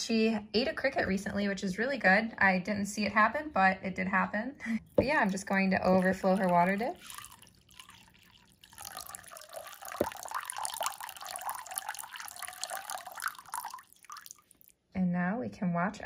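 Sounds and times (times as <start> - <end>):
water pouring into ceramic dish: 4.8 - 14.8.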